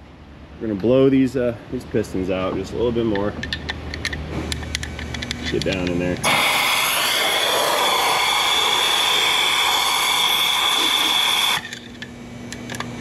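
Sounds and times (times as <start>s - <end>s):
compressed air blow gun hissing: 6.2s - 11.7s.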